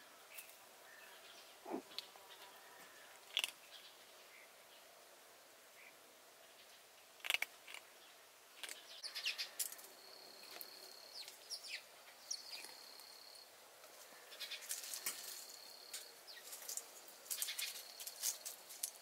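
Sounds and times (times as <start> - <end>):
small birds chirping: 0.3 - 4.9, 5.8 - 19.0
light rustling and ticking: 14.6 - 19.0.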